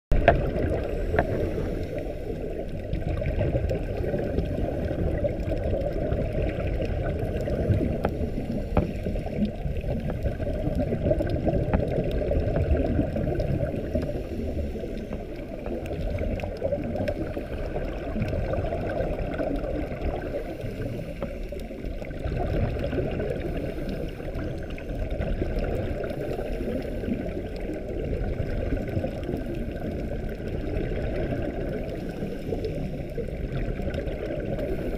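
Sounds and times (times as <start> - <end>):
underwater rumble of moving water: 0.1 - 34.9
faint ticks: 0.2 - 34.9.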